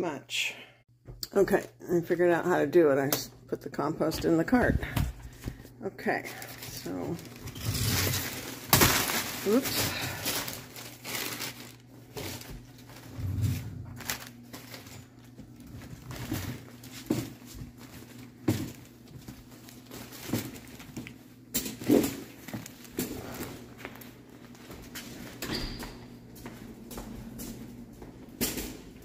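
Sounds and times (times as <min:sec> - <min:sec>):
steady low hum: 0:00.7 - 0:29.0
footsteps: 0:22.5 - 0:29.0.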